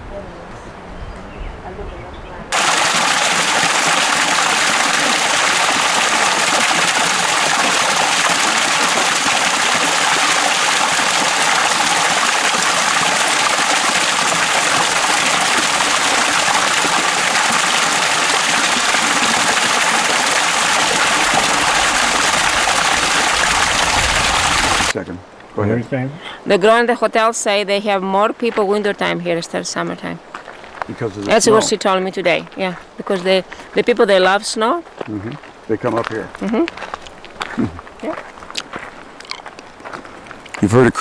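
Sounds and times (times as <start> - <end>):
water jet splashing onto rocks: 2.5 - 24.9.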